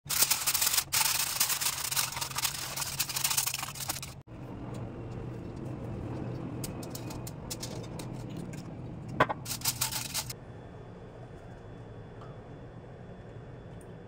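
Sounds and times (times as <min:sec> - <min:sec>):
aluminium foil crinkling: 0:00.1 - 0:04.3, 0:09.4 - 0:10.4
low steady hum: 0:01.5 - 0:14.0.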